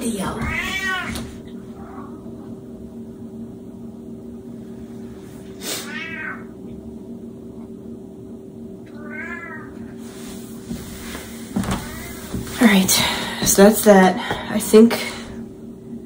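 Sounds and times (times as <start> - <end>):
steady low hum: 0.0 - 16.0
cat meowing loudly: 0.4 - 1.3, 9.0 - 9.8.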